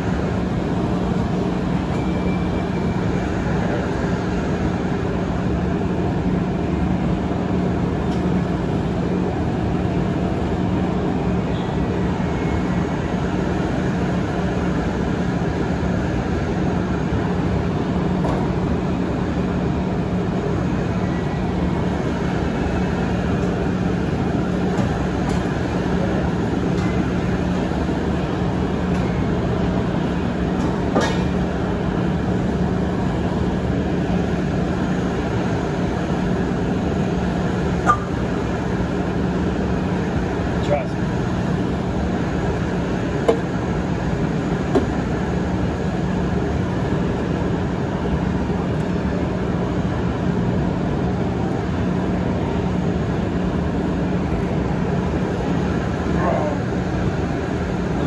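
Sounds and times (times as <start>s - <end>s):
machine drone with low hum: 0.0s - 58.0s.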